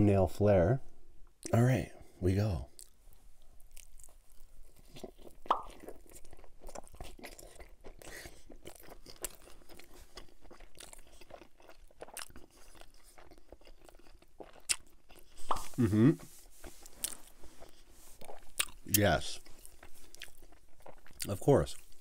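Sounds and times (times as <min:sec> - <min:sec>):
wet mouth clicks: 0:05.4 - 0:05.8, 0:15.4 - 0:16.3.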